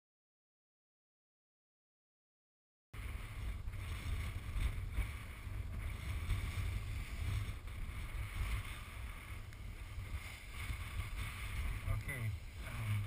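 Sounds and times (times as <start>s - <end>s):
wind buffeting microphone: 3.0s - 13.0s.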